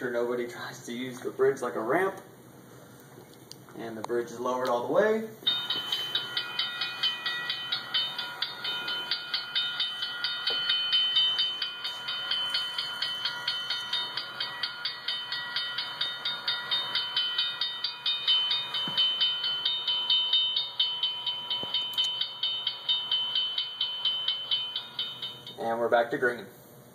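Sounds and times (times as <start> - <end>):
crossing gate warning bell dinging: 5.4 - 26.3.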